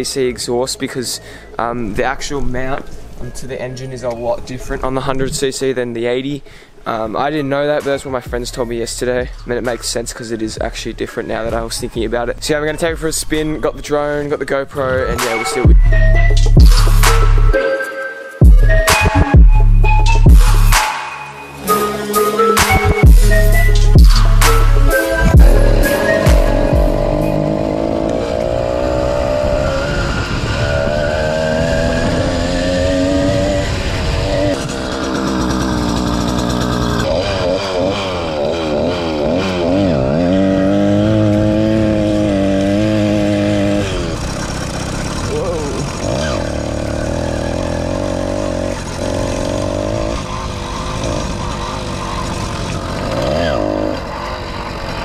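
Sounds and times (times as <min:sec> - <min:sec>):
two-stroke engine running: 0:24.0 - 0:55.0.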